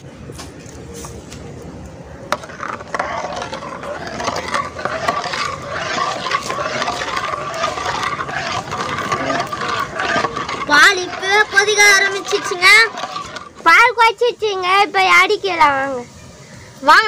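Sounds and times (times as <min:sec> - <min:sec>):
ladle scraping metal pot: 0:02.2 - 0:14.3.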